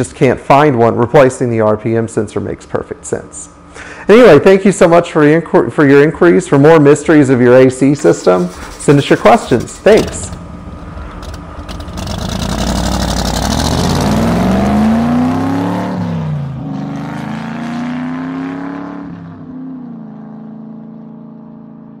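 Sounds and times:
car engine revving and idling: 8.0s - 22.0s.

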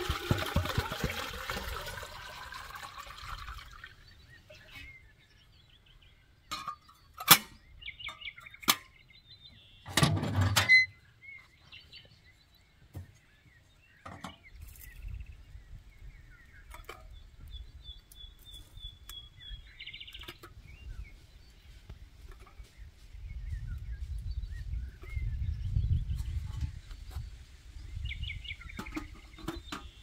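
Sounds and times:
small birds chirping: 3.4s - 10.0s, 10.7s - 30.0s
metal clatter of samovar parts: 6.5s - 9.0s.

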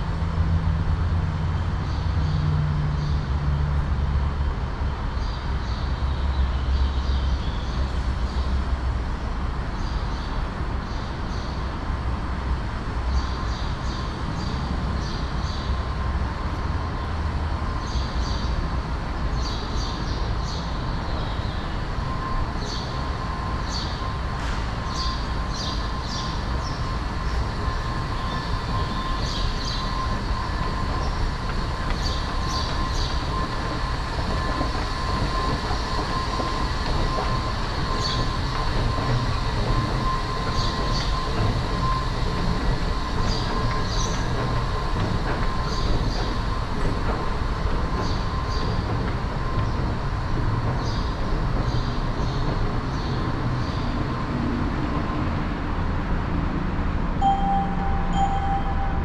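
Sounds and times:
train rumbling on rails: 0.0s - 59.0s
wheel squeals: 19.4s - 54.6s.

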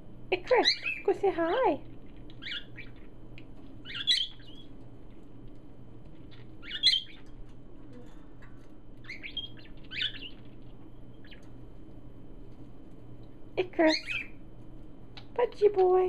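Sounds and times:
parakeets chirping: 0.4s - 1.5s, 2.3s - 3.2s, 3.8s - 4.8s, 6.1s - 7.4s, 9.0s - 11.6s, 13.7s - 14.4s.

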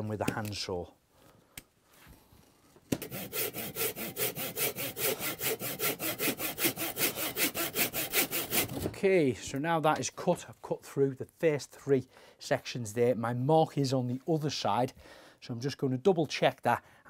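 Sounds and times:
handsaw cutting wood: 3.0s - 8.8s.

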